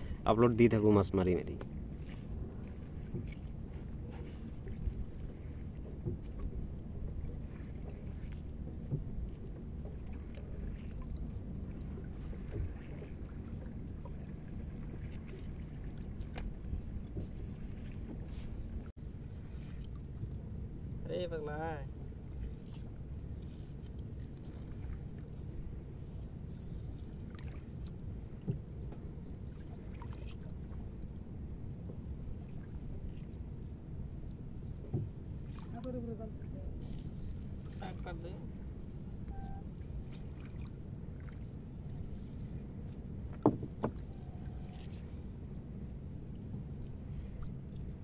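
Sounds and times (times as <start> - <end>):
steady low rumble: 0.0 - 21.2
river water: 0.0 - 48.0
wind: 0.0 - 48.0
soft knock: 43.3 - 44.0.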